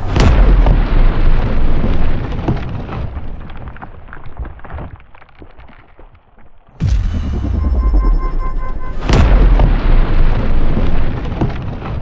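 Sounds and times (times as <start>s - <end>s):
explosion boom with rumble: 0.0s - 3.9s, 6.8s - 12.0s
crackling: 0.0s - 12.0s.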